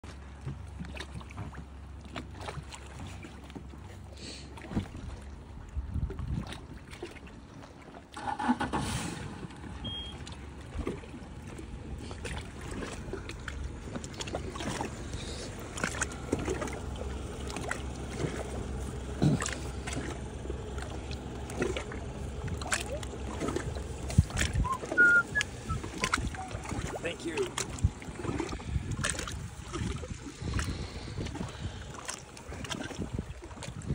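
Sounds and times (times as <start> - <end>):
low steady rumble: 0.0 - 33.9.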